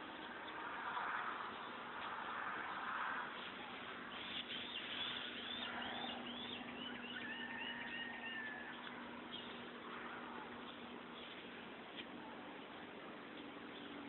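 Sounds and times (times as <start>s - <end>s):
faint low hum: 0.0s - 14.0s
bird singing: 3.6s - 11.4s, 13.4s - 14.0s.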